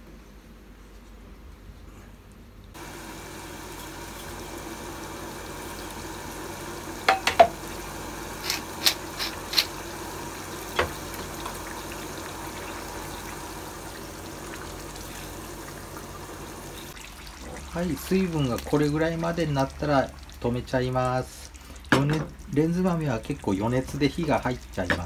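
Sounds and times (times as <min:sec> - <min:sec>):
stew simmering hiss: 0:02.8 - 0:25.0
spatula knocking on pot: 0:07.1 - 0:07.6.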